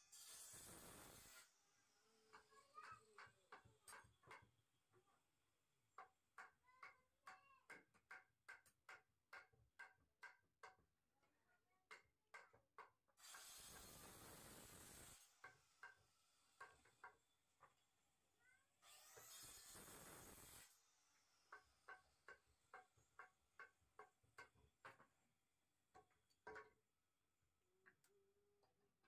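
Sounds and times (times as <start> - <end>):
tools knocking on wood: 2.3 - 4.6, 6.0 - 10.9, 11.9 - 13.0, 21.5 - 25.2, 25.9 - 26.9.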